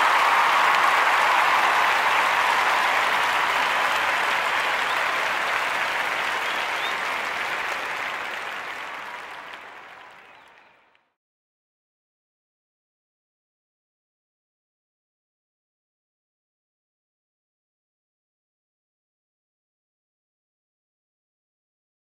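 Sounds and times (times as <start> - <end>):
crowd applause: 0.0 - 11.2.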